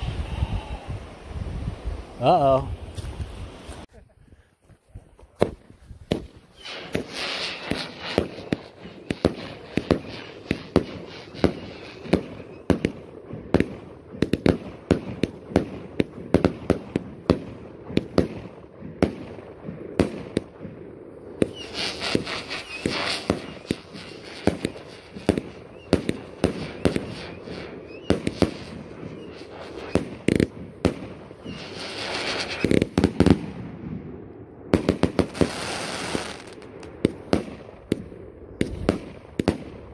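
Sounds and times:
fireworks launch reports: 0:00.0 - 0:03.9, 0:05.3 - 0:13.0, 0:21.4 - 0:34.0
fireworks hiss and crackle: 0:00.0 - 0:04.0, 0:04.6 - 0:34.1, 0:34.7 - 0:39.9.

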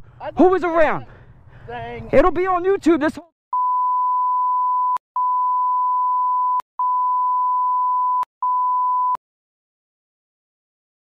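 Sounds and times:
people arguing: 0:00.0 - 0:03.3
censor bleep tone: 0:03.6 - 0:09.2.

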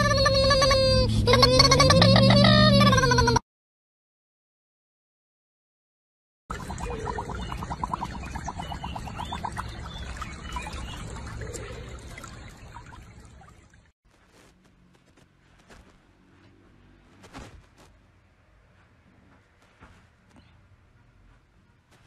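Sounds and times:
water sloshing and trickling: 0:06.5 - 0:13.9.

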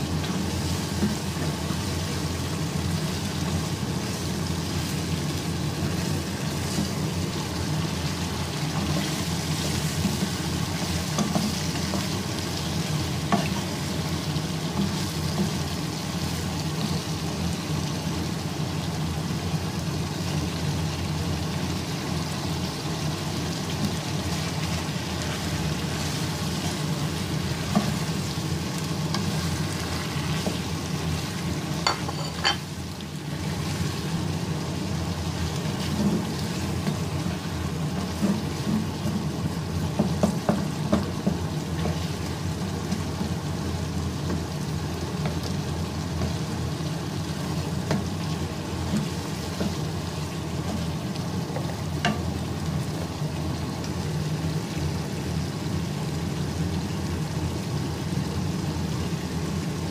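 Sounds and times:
meat sizzling in oil: 0:00.0 - 0:59.9
spatula knocking against pan: 0:40.0 - 0:41.4.

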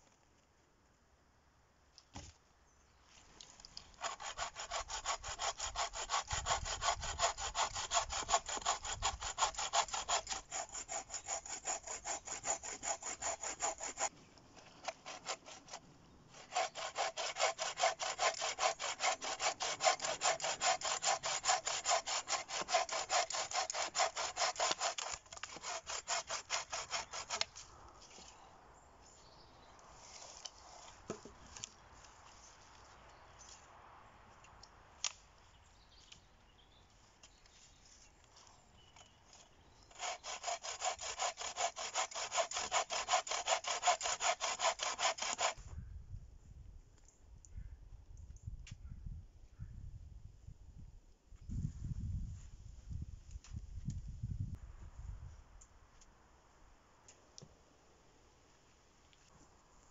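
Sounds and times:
bow saw cutting a branch: 0:03.5 - 0:28.4, 0:38.4 - 0:45.7.

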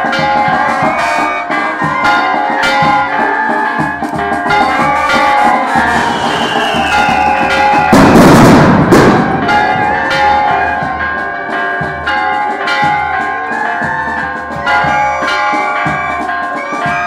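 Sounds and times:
church bells ringing: 0:00.0 - 0:06.1, 0:06.9 - 0:17.0
drumming: 0:00.0 - 0:17.0
loud crash: 0:05.7 - 0:10.9.

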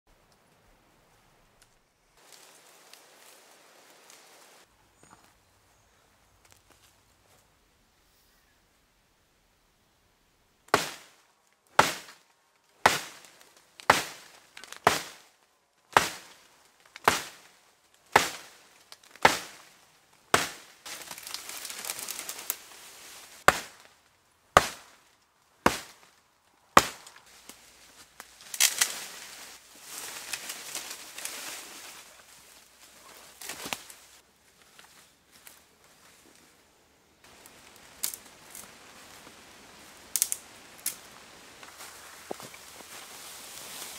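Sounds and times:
axe chopping wood: 0:10.7 - 0:11.1, 0:11.8 - 0:12.2, 0:12.8 - 0:15.2, 0:15.9 - 0:16.3, 0:17.0 - 0:17.5, 0:18.1 - 0:18.5, 0:19.2 - 0:19.6, 0:20.3 - 0:20.7, 0:23.5 - 0:23.9, 0:24.5 - 0:25.0, 0:25.6 - 0:26.1, 0:26.8 - 0:27.1
rustling and crackling: 0:18.4 - 0:24.1, 0:26.9 - 0:36.5.

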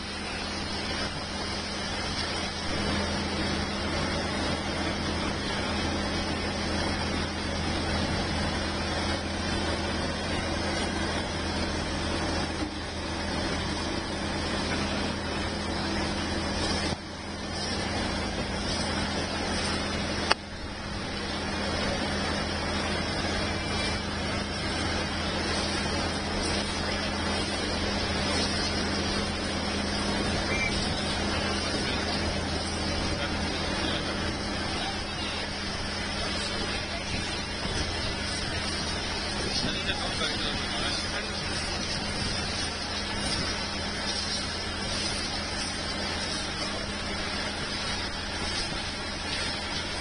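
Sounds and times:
heavy diesel engine humming: 0:00.0 - 0:50.0.

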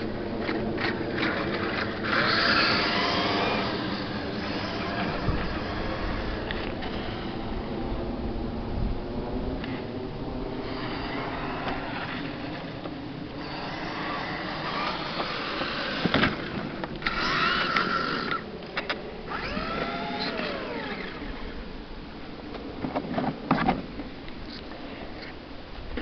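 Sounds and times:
electric toy car motor whine: 0:00.8 - 0:07.6, 0:10.5 - 0:18.5, 0:19.3 - 0:21.6.

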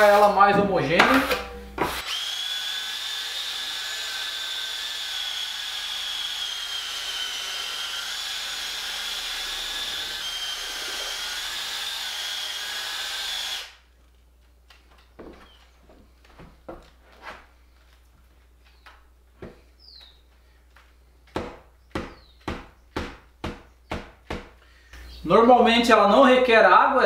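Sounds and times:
drill motor whine: 0:02.0 - 0:13.8.

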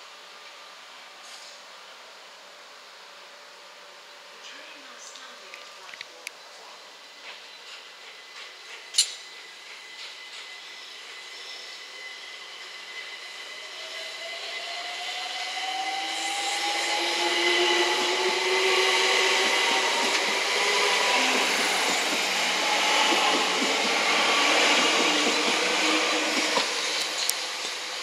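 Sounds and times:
train wheels on rail: 0:07.0 - 0:28.0
train motor whine: 0:08.3 - 0:28.0.

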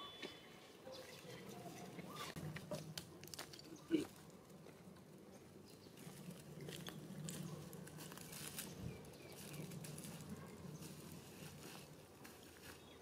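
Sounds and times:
low hum: 0:01.8 - 0:12.3
dry leaves crackling and rustling: 0:02.8 - 0:04.3, 0:06.0 - 0:13.0.

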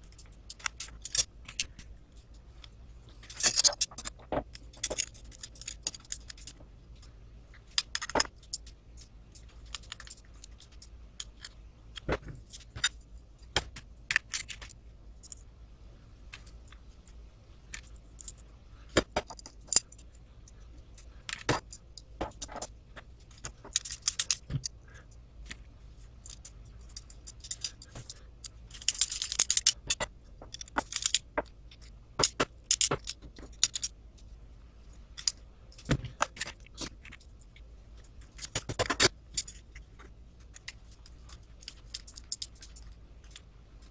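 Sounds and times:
clinking of small hardware: 0:03.2 - 0:06.6, 0:23.3 - 0:24.8, 0:26.2 - 0:34.0
rattling and scraping: 0:16.3 - 0:43.9.

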